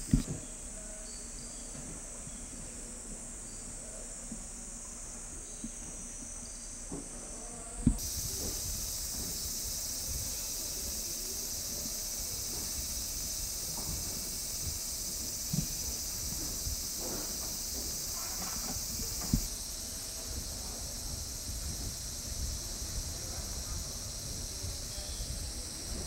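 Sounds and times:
insects chorus: 0.0s - 26.0s
short thump: 7.8s - 9.4s.

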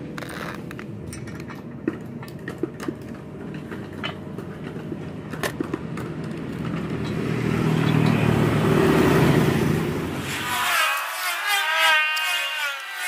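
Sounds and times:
passing vehicle engine rumble: 0.1s - 10.5s.

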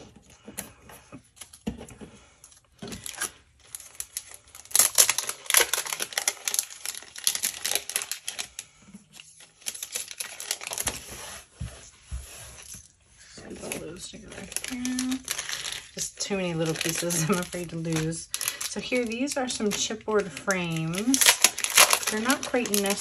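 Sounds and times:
plastic packet crinkling: 2.8s - 11.1s, 13.4s - 23.0s.

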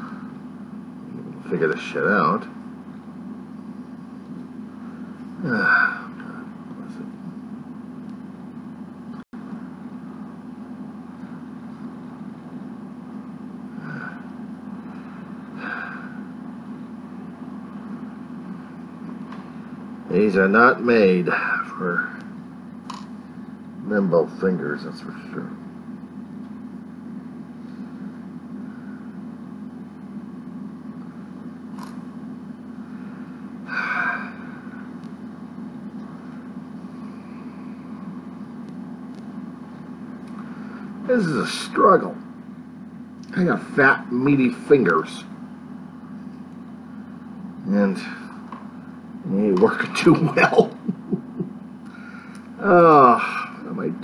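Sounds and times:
low background hum: 0.0s - 54.0s
man's faint vocal sounds: 5.3s - 7.1s, 13.7s - 14.3s
person grunting: 5.4s - 6.5s, 13.8s - 14.2s, 33.7s - 34.6s.

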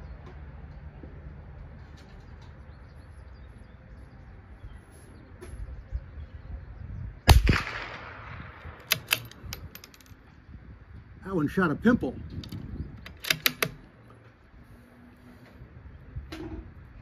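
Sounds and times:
rifle shot: 7.3s - 9.4s
rifle bolt clicks: 8.7s - 10.1s, 12.4s - 13.8s.

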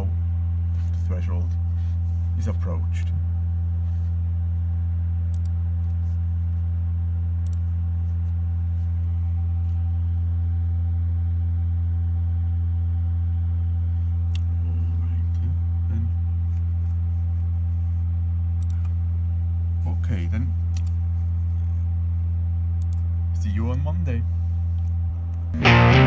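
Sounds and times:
testing machine humming: 25.5s - 26.0s.

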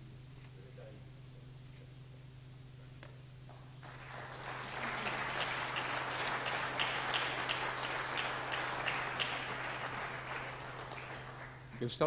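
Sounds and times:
low electrical hum: 0.0s - 12.0s
audience applauding: 3.8s - 12.0s.

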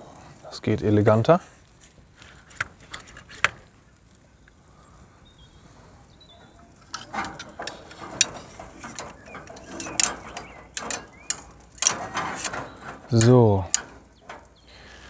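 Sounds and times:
tongs clinking on metal grill: 6.4s - 14.6s.

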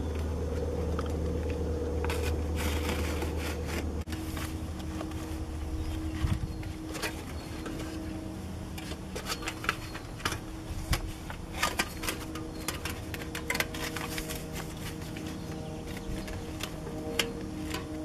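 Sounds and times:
steady low hum: 0.0s - 18.0s
foil insulation crinkling: 2.0s - 17.8s.

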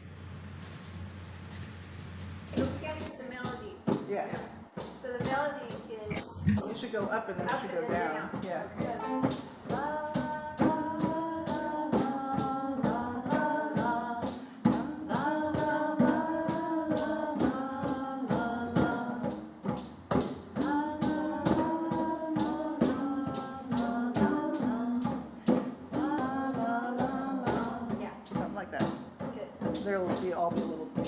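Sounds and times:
hand drums beating: 2.4s - 31.0s
voices singing together: 7.5s - 28.0s.

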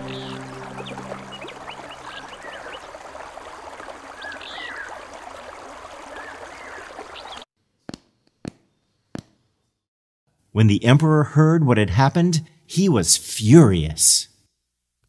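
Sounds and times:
small birds chirping: 0.0s - 3.0s, 4.2s - 5.0s, 6.1s - 7.4s
stream running: 0.0s - 7.4s.

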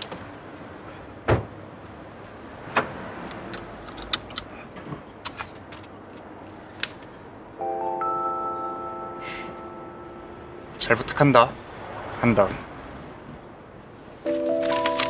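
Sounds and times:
seatbelt clicks and rustles: 3.3s - 4.5s, 14.5s - 15.0s
music: 7.6s - 10.7s, 14.3s - 15.0s.

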